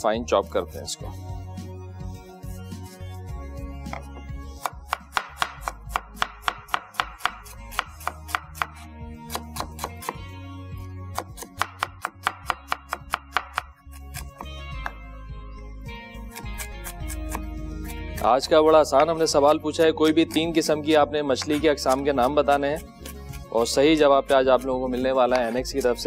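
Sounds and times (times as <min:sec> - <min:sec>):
background music: 0:00.0 - 0:26.0
knife chopping onion on wood: 0:03.9 - 0:10.3, 0:11.1 - 0:15.0, 0:16.3 - 0:18.3.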